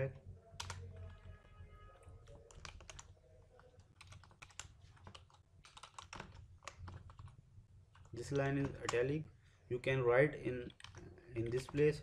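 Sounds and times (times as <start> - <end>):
keyboard typing: 0.0 - 9.1, 10.5 - 12.0.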